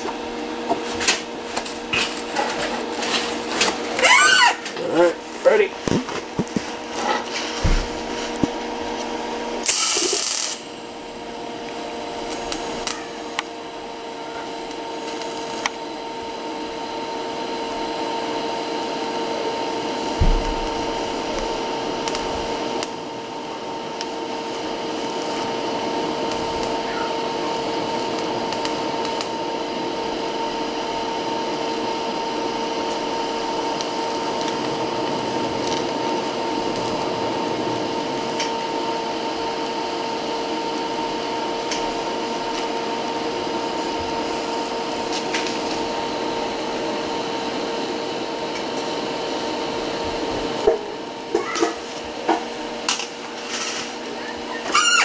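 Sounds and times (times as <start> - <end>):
welding arc hissing and humming: 0.0 - 55.0
brief thump: 7.6 - 8.0, 20.2 - 20.7.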